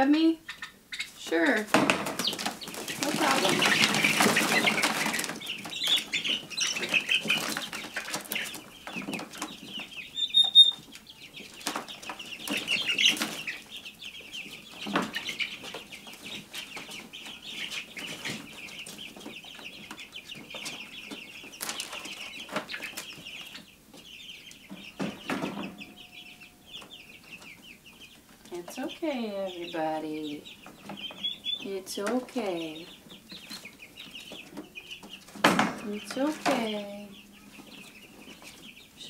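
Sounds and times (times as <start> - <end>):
turkey poults peeping: 0.2 - 39.0
wing flapping and scuffling: 1.0 - 24.1.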